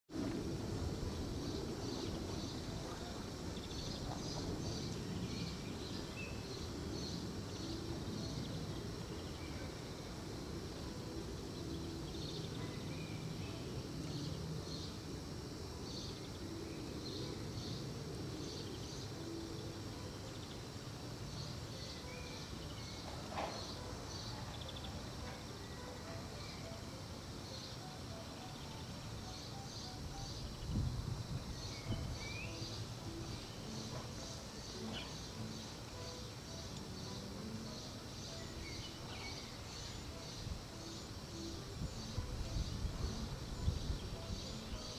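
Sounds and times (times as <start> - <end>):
wind on microphone: 30.4 - 32.6, 41.6 - 44.8.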